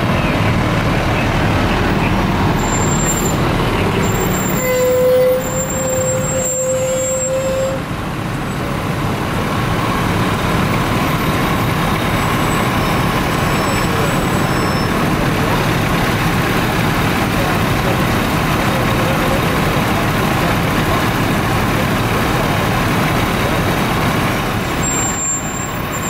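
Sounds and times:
fire engines driving past: 0.0 - 26.0
steady horn tone: 1.7 - 7.9.

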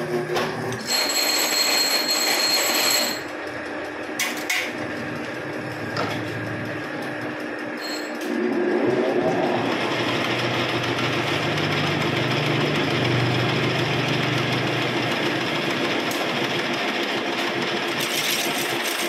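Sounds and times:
steady machine hum: 0.0 - 19.0
lathe motor spinning up: 3.2 - 16.8
loud whining noise: 4.8 - 15.4.

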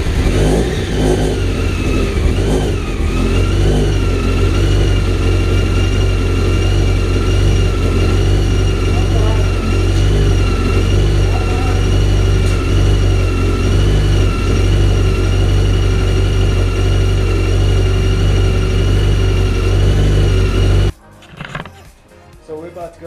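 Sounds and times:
car engine idling: 0.0 - 20.9.

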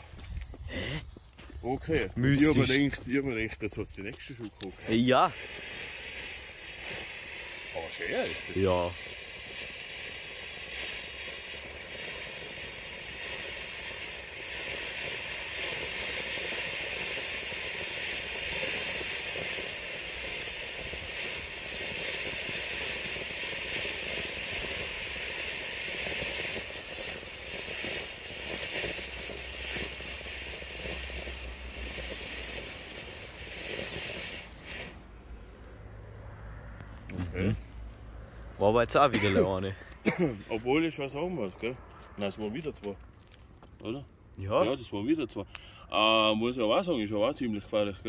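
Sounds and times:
firework fountain hissing: 0.0 - 35.2, 38.7 - 48.0.

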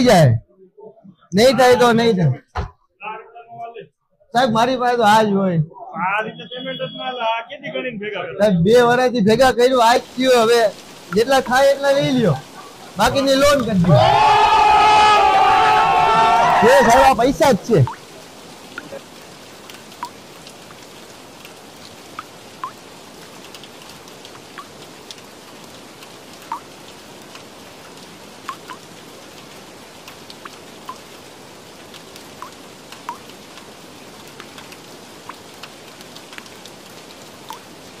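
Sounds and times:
rain-like hiss: 1.4 - 2.4, 8.7 - 38.0
water drops plinking: 17.8 - 18.0, 20.0 - 20.2, 22.1 - 22.8, 26.5 - 26.7.

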